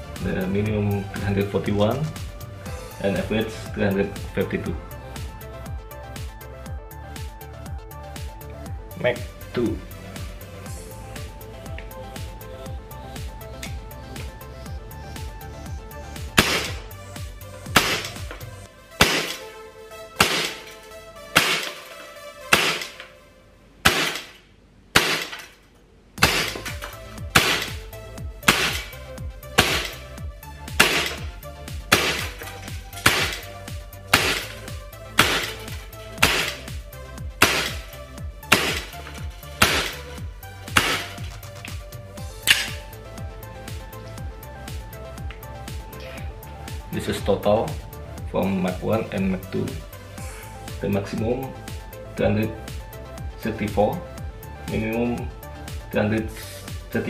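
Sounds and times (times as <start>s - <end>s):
background music: 0.0s - 57.0s
airsoft gun shots: 16.4s - 16.8s, 17.7s - 18.3s, 19.0s - 19.5s, 20.2s - 23.0s, 23.8s - 25.5s, 26.2s - 27.8s, 28.4s - 29.0s, 29.6s - 30.0s, 30.8s - 31.3s, 31.9s - 33.5s, 34.1s - 34.6s, 35.2s - 36.7s, 37.4s - 37.8s, 38.5s - 39.0s, 39.6s - 40.0s, 40.7s - 41.3s.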